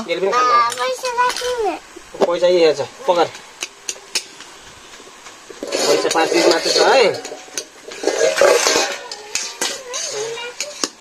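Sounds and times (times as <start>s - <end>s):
metal ladle scraping wok: 5.5s - 10.4s
plates and cutlery clinking: 5.5s - 11.0s.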